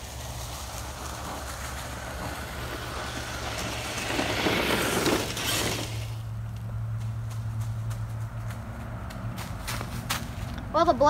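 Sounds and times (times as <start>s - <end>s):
rc car electric motor: 0.0s - 6.4s
tyres over dry leaves: 0.0s - 10.8s.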